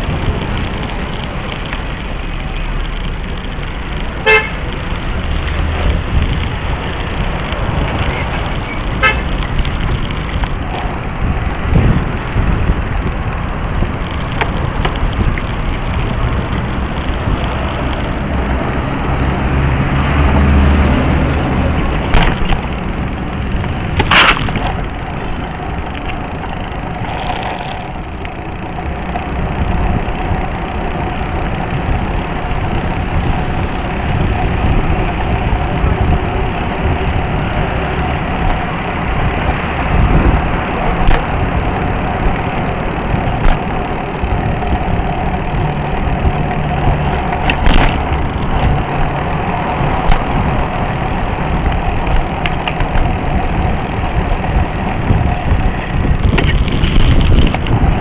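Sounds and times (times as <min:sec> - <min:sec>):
bicycle road rumble: 0:00.0 - 0:58.0
wind noise: 0:03.5 - 0:58.0
horn beeps: 0:04.2 - 0:04.6.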